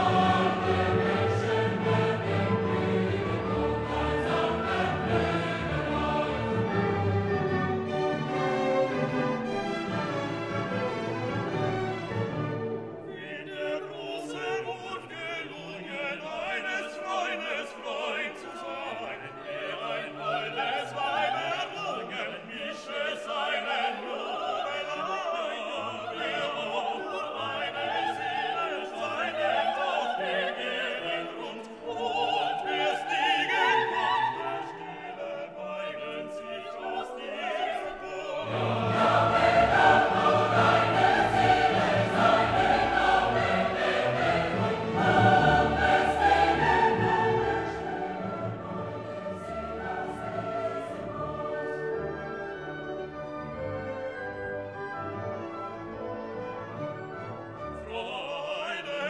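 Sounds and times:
orchestra playing: 0.0 - 22.0, 33.1 - 58.8
choir singing: 0.0 - 59.0.

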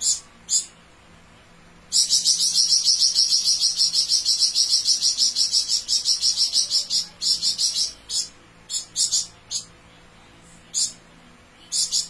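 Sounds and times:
songbird high-pitched trill: 0.0 - 0.8, 1.9 - 9.7, 10.7 - 11.0, 11.6 - 12.0.

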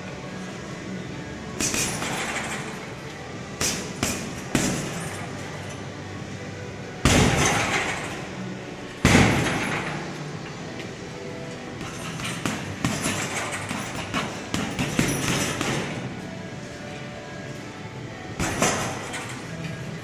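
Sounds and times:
punches hitting heavy bag: 1.6 - 2.7, 3.6 - 5.1, 7.0 - 8.1, 9.0 - 10.0, 11.8 - 16.0, 18.4 - 19.2.

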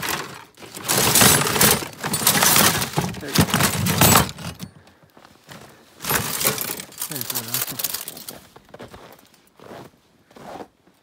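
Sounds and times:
steel traps and chains jangling: 0.0 - 4.7, 6.0 - 8.4.

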